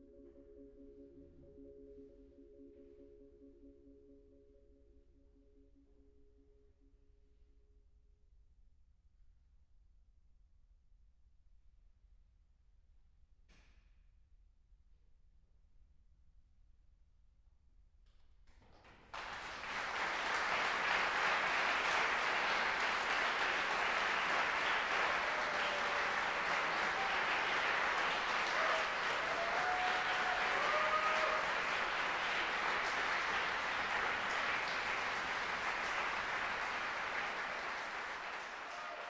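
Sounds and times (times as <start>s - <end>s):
audience applauding: 19.0s - 39.0s.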